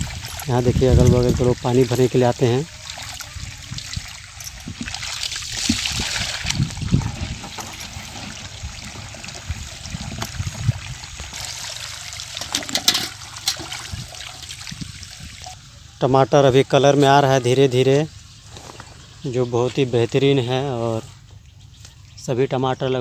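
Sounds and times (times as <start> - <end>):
water pouring into plastic bucket: 0.0 - 15.4.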